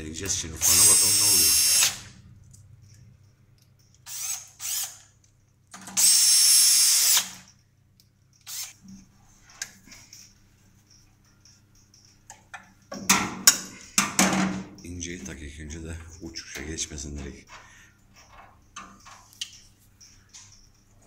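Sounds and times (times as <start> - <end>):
small electric motor whirring: 0.6 - 2.1, 4.0 - 5.1, 6.0 - 7.4, 8.5 - 8.8.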